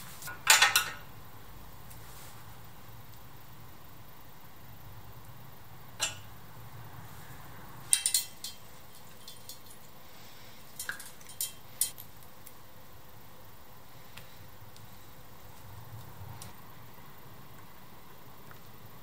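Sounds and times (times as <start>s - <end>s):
metallic clinks of spanner: 7.9s - 9.9s, 10.8s - 12.0s.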